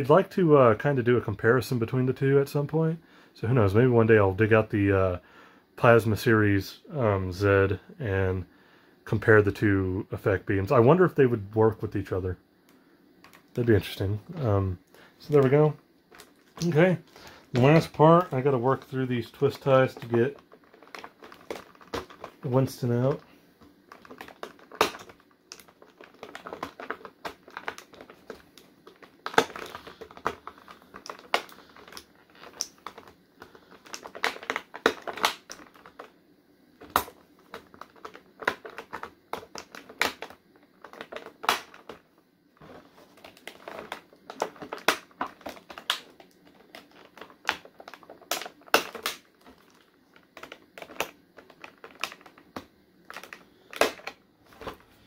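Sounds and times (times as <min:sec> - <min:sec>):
plastic packaging rustling: 0:13.2 - 0:36.1, 0:36.8 - 0:55.0.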